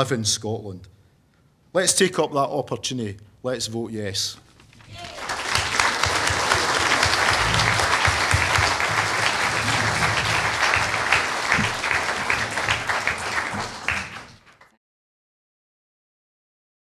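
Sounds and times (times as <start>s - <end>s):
audience applauding: 4.9s - 14.7s.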